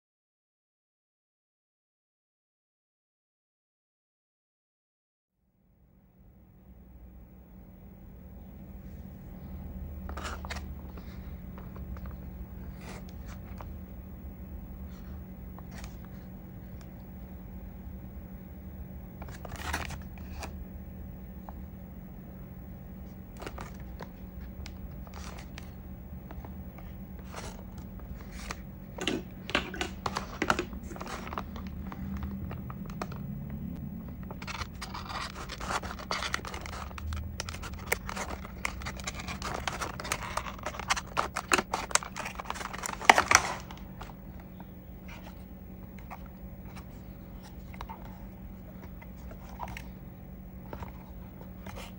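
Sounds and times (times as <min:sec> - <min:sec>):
faint steady hum: 0:05.4 - 0:51.9
plastic packaging crinkling: 0:10.0 - 0:14.0, 0:19.2 - 0:20.6, 0:23.0 - 0:51.9
knife scraping plastic: 0:23.4 - 0:33.3, 0:34.2 - 0:44.5.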